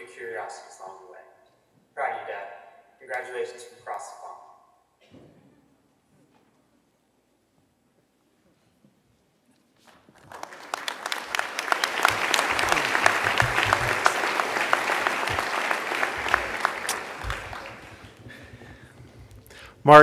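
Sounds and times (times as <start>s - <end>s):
audience applauding: 10.1s - 19.1s.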